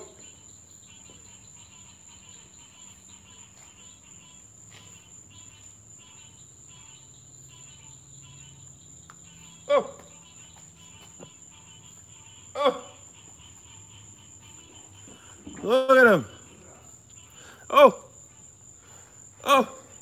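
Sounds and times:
crickets and insects trilling: 0:00.0 - 0:20.0
high-pitched insect whine: 0:00.0 - 0:20.0
man exclaiming: 0:12.6 - 0:13.0, 0:15.6 - 0:16.9, 0:17.7 - 0:18.1, 0:19.4 - 0:20.0.

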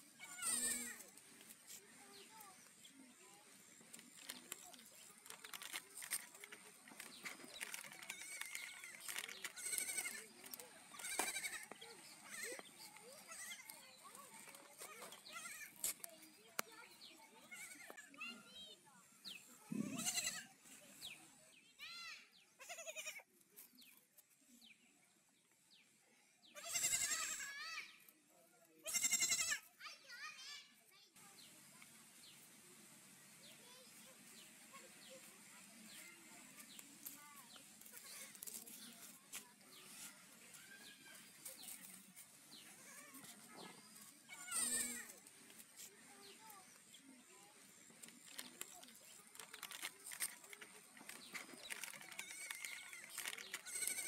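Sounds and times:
baby goats bleating: 0:00.2 - 0:01.0, 0:08.0 - 0:10.3, 0:11.0 - 0:13.8, 0:15.2 - 0:15.8, 0:17.5 - 0:17.9, 0:19.7 - 0:20.5, 0:22.6 - 0:23.2, 0:26.6 - 0:27.6, 0:28.8 - 0:29.7, 0:44.3 - 0:45.1, 0:52.2 - 0:54.0
small clicks: 0:47.9 - 0:54.0.

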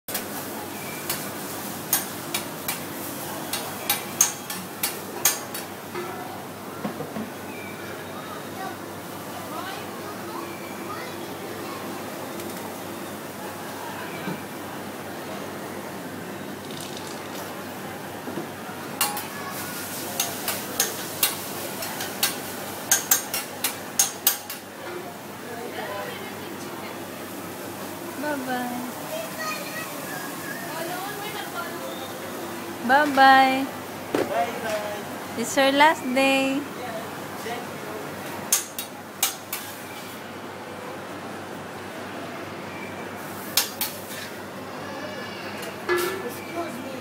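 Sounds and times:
metal spatulas clacking on griddle: 0:01.9 - 0:02.9, 0:03.5 - 0:06.1, 0:19.0 - 0:19.3, 0:20.2 - 0:24.7, 0:38.5 - 0:39.8
steady background hum: 0:21.8 - 0:46.2.

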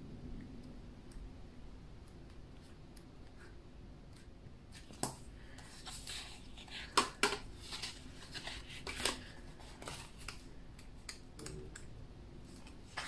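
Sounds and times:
paper pages rustling: 0:04.7 - 0:10.5, 0:12.5 - 0:13.0.

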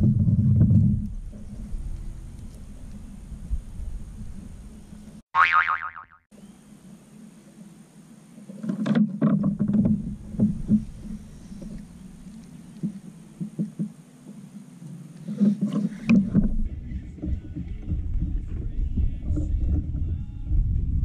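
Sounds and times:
wind buffeting microphone: 0:16.3 - 0:21.0.

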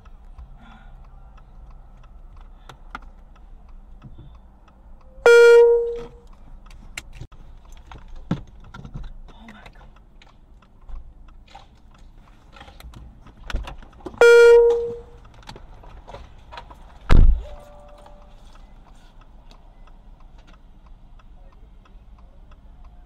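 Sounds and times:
small clicks and rattles in car: 0:00.0 - 0:23.0
short loud beep: 0:05.2 - 0:06.1, 0:14.2 - 0:15.1.

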